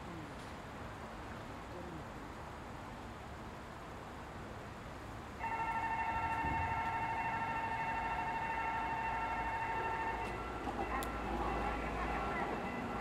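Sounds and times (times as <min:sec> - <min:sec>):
level crossing bell ringing: 0:05.4 - 0:13.0.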